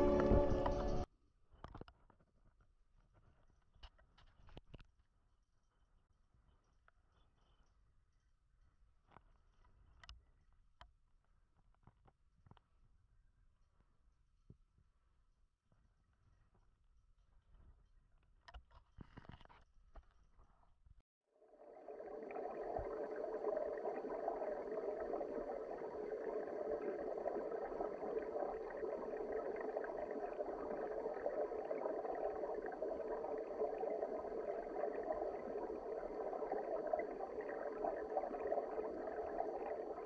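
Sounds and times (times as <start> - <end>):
muffled underwater stream rushing: 0.0 - 1.1, 21.4 - 40.0.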